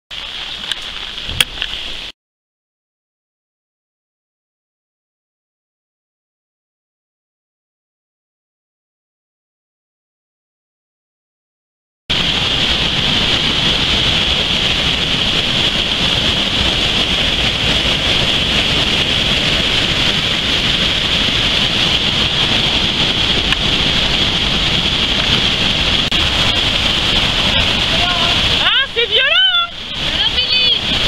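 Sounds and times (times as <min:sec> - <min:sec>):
water rushing over stone drop: 0:00.1 - 0:02.2, 0:12.1 - 0:31.0.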